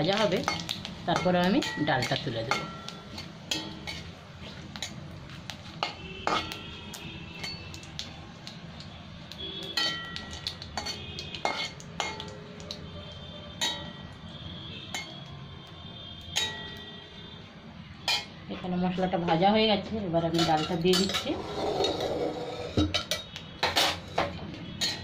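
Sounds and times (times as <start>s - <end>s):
spices frying in oil: 0.0s - 22.2s, 22.8s - 25.0s
spatula scraping metal pan: 20.4s - 23.2s.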